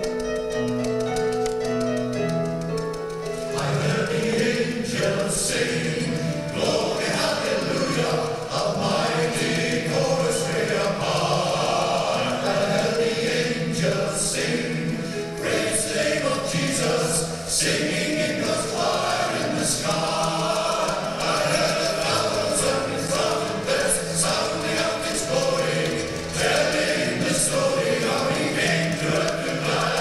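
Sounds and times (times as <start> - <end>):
choir singing: 3.4 - 30.0.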